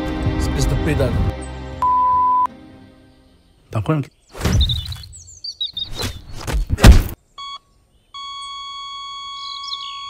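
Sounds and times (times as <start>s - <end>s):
birds chirping: 1.3s - 10.0s
short electronic beep: 1.8s - 2.5s
thuds and hits: 6.4s - 7.2s.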